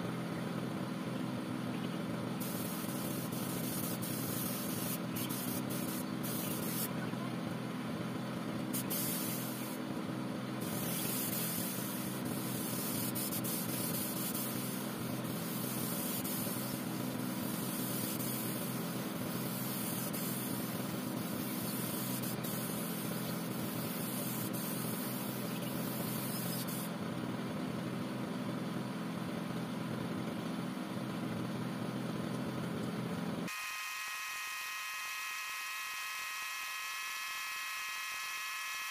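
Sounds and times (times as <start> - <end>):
air compressor hum: 0.0 - 38.9
spray gun hissing: 2.4 - 6.9, 8.7 - 9.8, 10.6 - 26.9.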